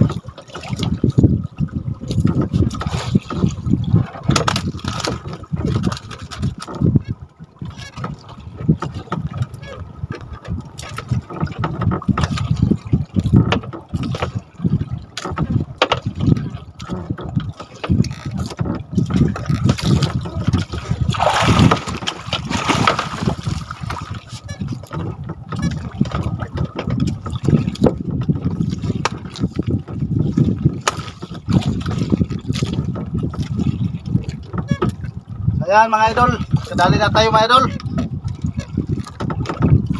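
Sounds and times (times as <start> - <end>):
water slapping against boat: 0.0 - 39.9
sharp knocks and clicks: 4.2 - 6.9, 13.2 - 14.4, 15.2 - 20.8.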